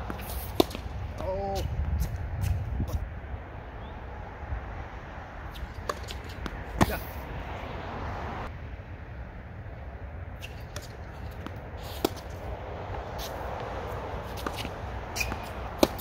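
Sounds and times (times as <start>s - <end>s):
tennis ball struck and bouncing: 0.0s - 0.9s, 5.5s - 7.2s, 10.4s - 16.0s.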